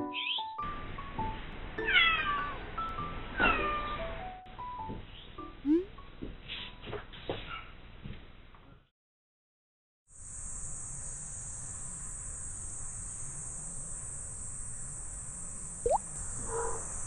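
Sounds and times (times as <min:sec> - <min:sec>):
high-pitched insect chorus: 0:10.1 - 0:17.0
short rising chirp: 0:11.0 - 0:17.0.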